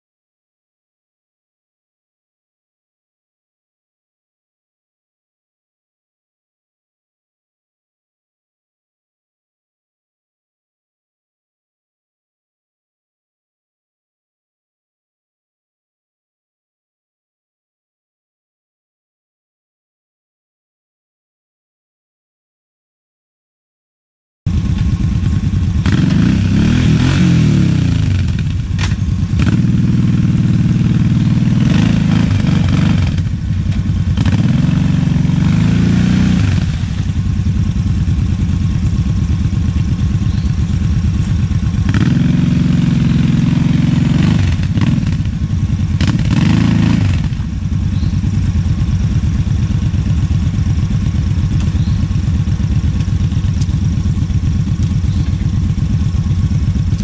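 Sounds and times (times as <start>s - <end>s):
atv engine revving: 24.5s - 57.0s.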